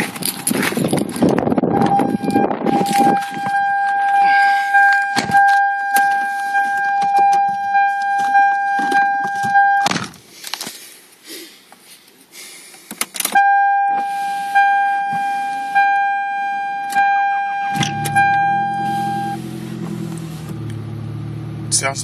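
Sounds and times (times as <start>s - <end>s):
ignition key rattling and clicks: 0.1s - 4.2s, 12.9s - 13.4s
car warning chime: 1.7s - 9.9s, 13.4s - 19.5s.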